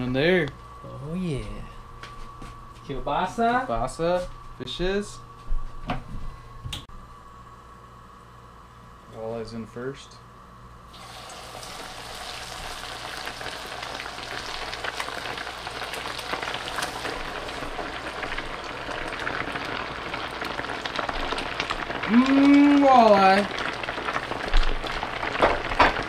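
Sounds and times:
fish frying in hot oil: 10.9s - 26.0s.

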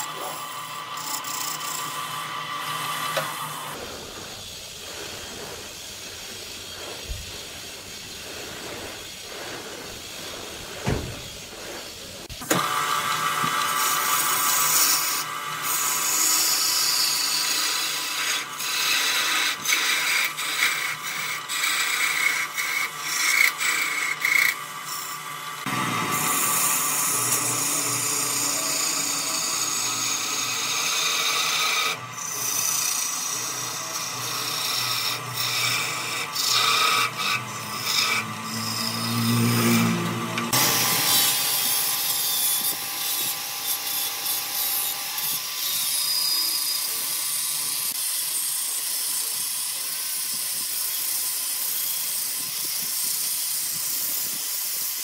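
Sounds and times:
lathe running: 0.0s - 49.9s
angle grinder sanding wood: 0.0s - 55.0s
chisel scraping spinning wood: 0.0s - 55.0s.

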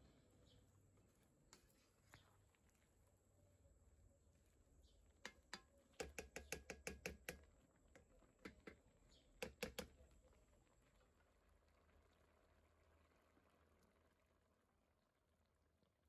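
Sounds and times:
spoon clicking against pan: 5.2s - 7.4s, 9.4s - 10.0s.

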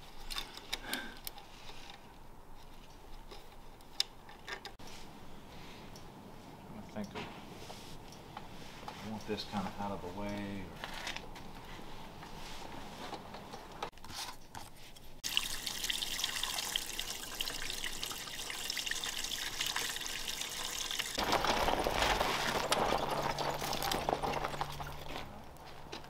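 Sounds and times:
gasoline pouring through funnel: 15.2s - 25.6s.

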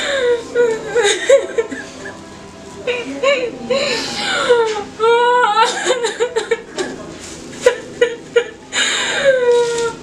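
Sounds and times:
woman crying and sobbing: 0.0s - 6.8s, 7.6s - 10.0s.

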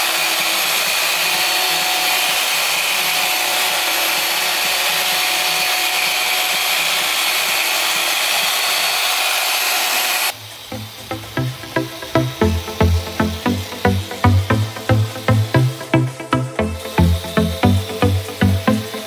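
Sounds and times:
machine polisher whirring: 0.0s - 19.0s
electronic dance music: 10.3s - 19.0s.

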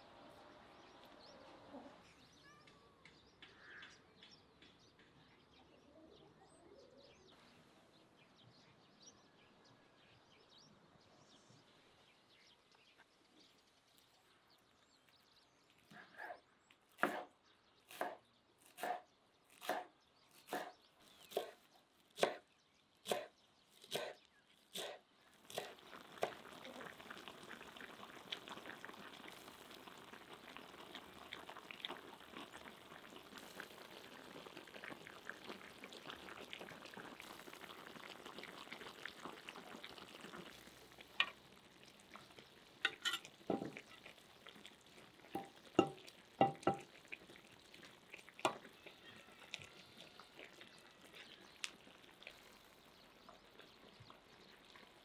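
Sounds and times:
stew sizzling and crackling: 13.0s - 55.0s.

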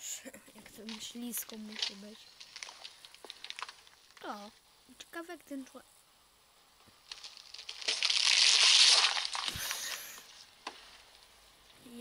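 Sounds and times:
watermelon crushed under car tyre: 0.8s - 4.4s, 6.9s - 10.8s.

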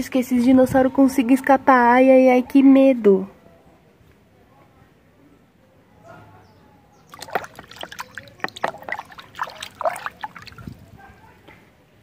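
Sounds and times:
water splashing in a plastic bucket: 7.1s - 11.0s.

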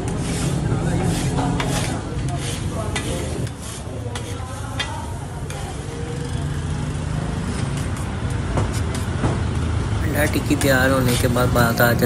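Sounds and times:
metal scraper scraping griddle: 0.0s - 4.9s.

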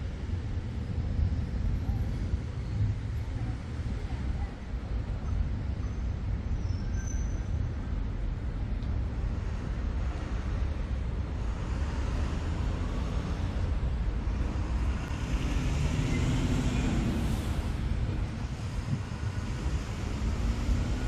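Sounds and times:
city traffic rumble: 0.0s - 21.0s
vehicle passing by: 14.3s - 21.0s.

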